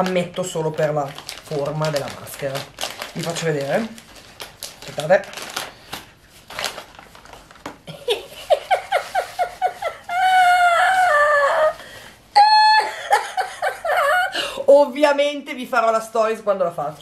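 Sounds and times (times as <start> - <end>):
woman yelping: 10.1 - 11.8, 12.4 - 13.3.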